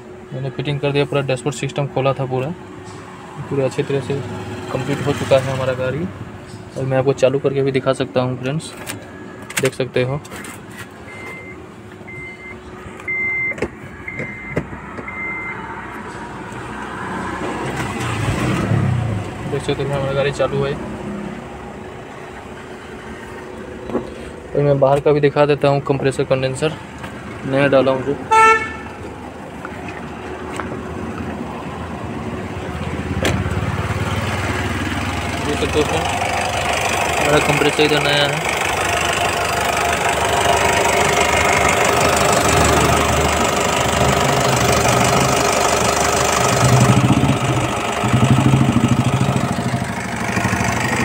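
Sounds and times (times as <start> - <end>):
diesel engine starting: 0.3 - 28.3, 28.9 - 51.0
car warning chime beeping: 11.1 - 15.6.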